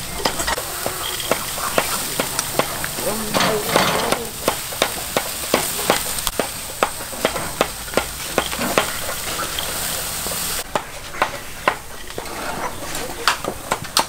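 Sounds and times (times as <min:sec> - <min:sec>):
meat sizzling on a grill: 0:00.0 - 0:14.0.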